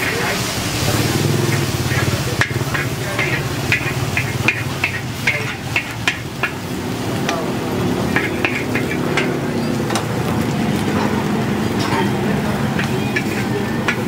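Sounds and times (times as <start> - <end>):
metal spatula scraping a wok: 0.0 - 6.7, 8.0 - 9.5, 11.2 - 14.0.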